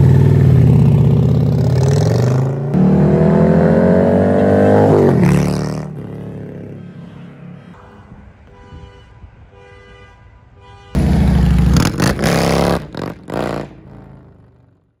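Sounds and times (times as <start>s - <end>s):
motorcycle engine revving: 0.0s - 6.8s, 11.0s - 15.0s.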